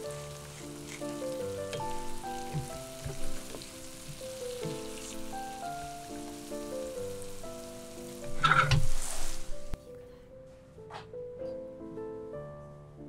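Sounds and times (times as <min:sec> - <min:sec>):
food sizzling in a pan: 0:00.0 - 0:09.8
gentle melodic background music: 0:00.0 - 0:13.0.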